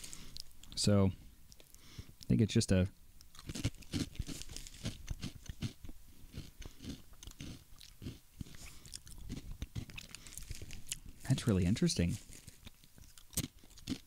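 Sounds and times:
chewing crisp chips: 3.2s - 14.0s.

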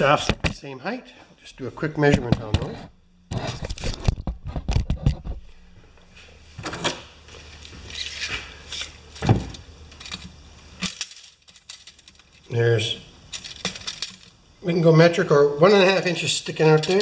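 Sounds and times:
tape measure clicking and rattling: 16.7s - 17.0s.

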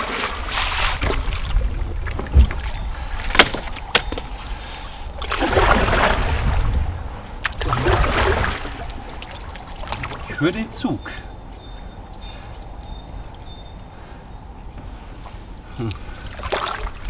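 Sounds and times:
paddle splashing water: 0.0s - 10.7s, 16.2s - 17.0s.

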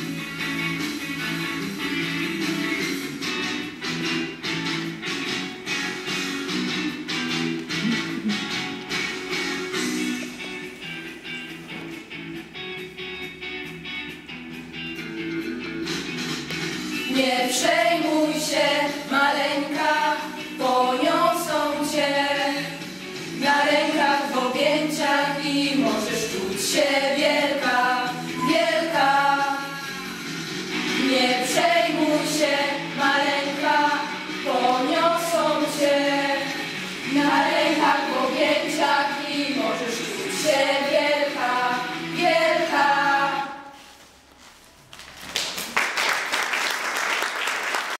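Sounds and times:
women singing in harmony: 17.1s - 22.8s, 23.4s - 30.0s, 31.0s - 43.8s.

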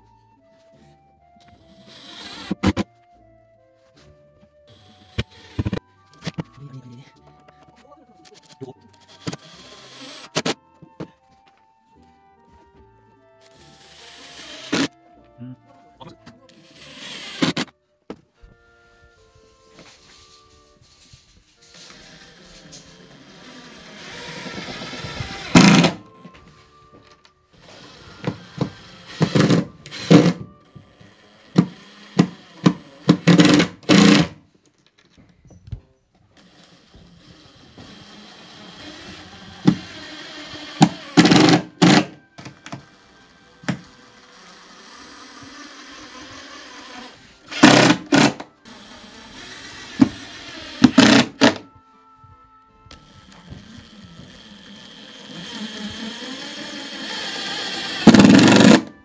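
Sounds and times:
faint background music: 0.0s - 59.0s
power driver driving screws into wood: 1.5s - 2.8s, 4.8s - 6.4s, 9.0s - 10.6s, 13.5s - 15.0s, 16.5s - 17.7s, 21.7s - 26.1s, 27.6s - 34.4s, 36.4s - 51.6s, 52.9s - 59.0s.

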